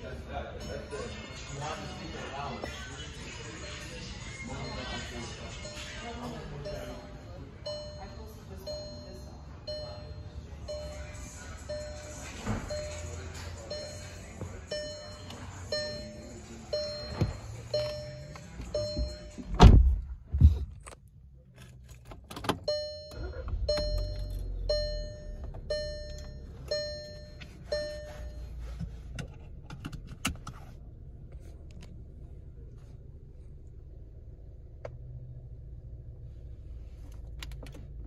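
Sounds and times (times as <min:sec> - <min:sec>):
car engine starting and idling: 0:00.0 - 0:38.0
car warning chime: 0:00.5 - 0:19.6, 0:22.4 - 0:28.8
heavy thunks: 0:18.7 - 0:20.8.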